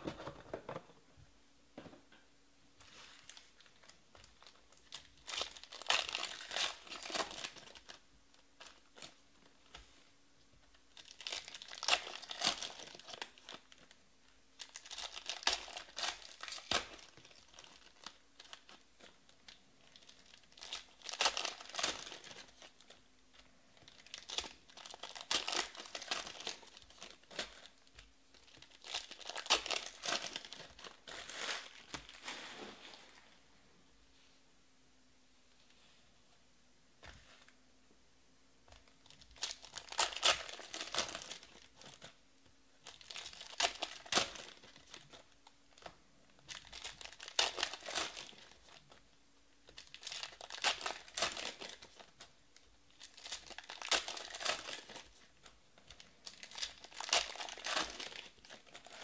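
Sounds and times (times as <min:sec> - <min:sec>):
foil packs tearing and crinkling: 0:14.6 - 0:18.8, 0:28.4 - 0:32.2, 0:39.0 - 0:42.0, 0:46.5 - 0:48.8, 0:49.7 - 0:52.1, 0:53.0 - 0:55.2, 0:56.2 - 0:59.0.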